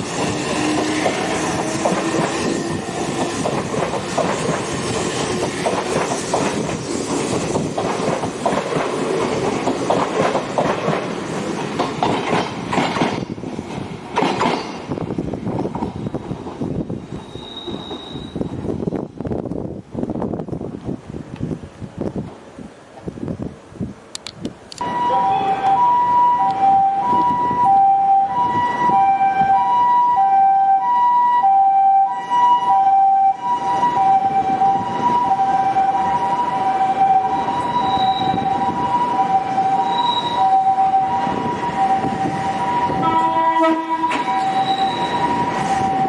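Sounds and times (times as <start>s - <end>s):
electric train rumbling: 0.0s - 46.0s
ambulance two-tone siren: 24.8s - 46.0s.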